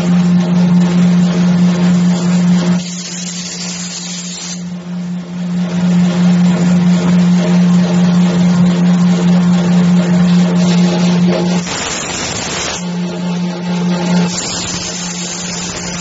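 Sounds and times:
machine spindle motor humming: 0:00.0 - 0:16.0
hissing noise: 0:11.6 - 0:12.8, 0:14.3 - 0:16.0.

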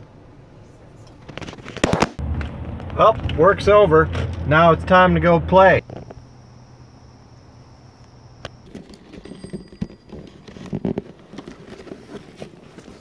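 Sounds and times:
mountain bike clattering over bumps: 0:08.6 - 0:11.5.

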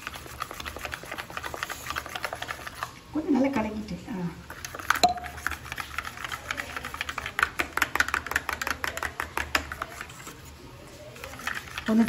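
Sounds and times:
spoon scraping steel tumbler: 0:04.5 - 0:10.4, 0:11.1 - 0:12.0.

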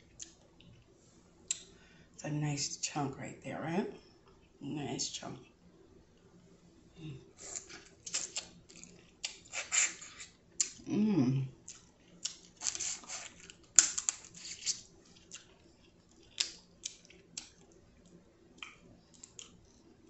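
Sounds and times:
person humming: 0:07.0 - 0:07.3, 0:10.9 - 0:11.5
wet sucking and lip smacks: 0:07.4 - 0:10.8
crab shell clicks and crackles: 0:11.8 - 0:15.5, 0:16.2 - 0:19.6.

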